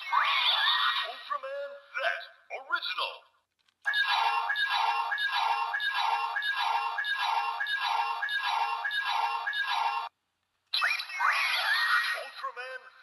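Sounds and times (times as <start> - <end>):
electronic toy beeping: 3.9 - 10.1.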